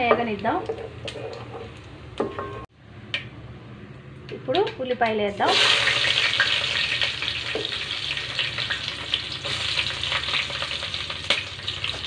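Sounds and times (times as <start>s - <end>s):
onions sizzling in oil: 5.4s - 12.0s.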